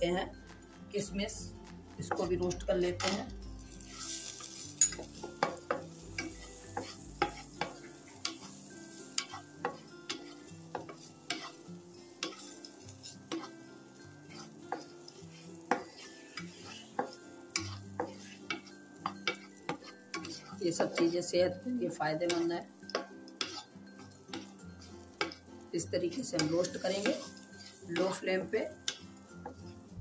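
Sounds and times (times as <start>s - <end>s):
light sizzle: 0.0s - 30.0s
spatula clicking against pan: 14.3s - 21.1s, 22.3s - 23.7s, 28.9s - 29.6s.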